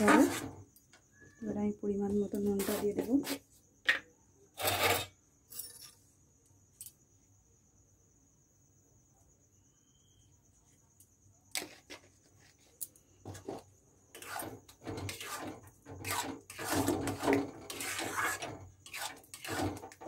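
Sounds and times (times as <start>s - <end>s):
metal spatula scraping pan: 13.4s - 20.0s.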